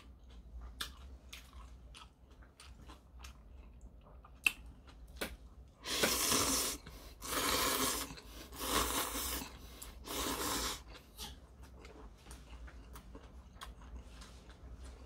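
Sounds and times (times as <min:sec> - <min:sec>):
person slurping noodles: 0:05.8 - 0:11.0.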